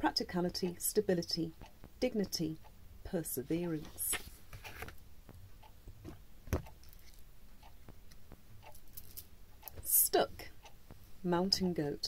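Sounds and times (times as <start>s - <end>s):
faint small clicks and rustles: 3.8s - 9.9s.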